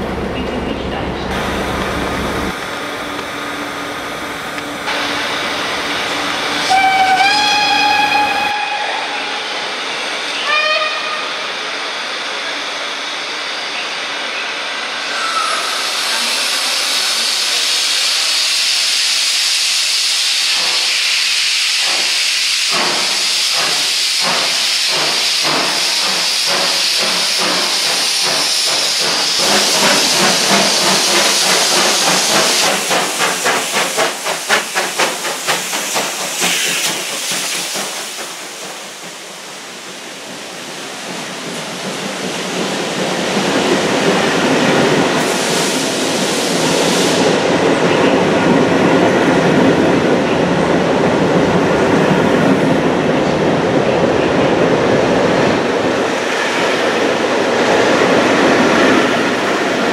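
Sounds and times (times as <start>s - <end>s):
steam hiss: 15.0s - 47.6s
steam locomotive exhaust chuffs: 15.6s - 40.7s.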